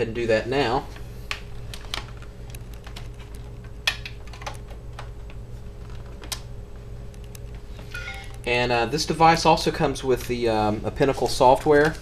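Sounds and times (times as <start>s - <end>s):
steady low hum: 0.0s - 12.0s
laptop keyboard tapping: 1.3s - 6.4s.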